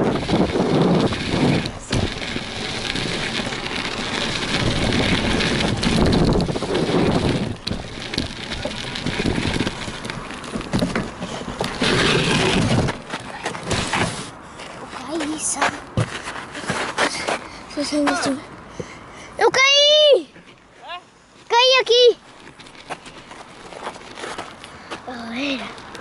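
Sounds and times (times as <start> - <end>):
wind on microphone: 0.0 - 10.1
bike tyres rolling on dirt: 0.0 - 18.3, 22.1 - 26.0.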